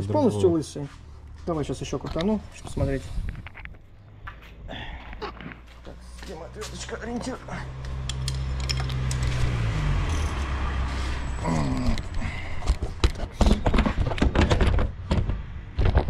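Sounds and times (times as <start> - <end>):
metallic tool clicks and knocks: 7.9 - 9.5.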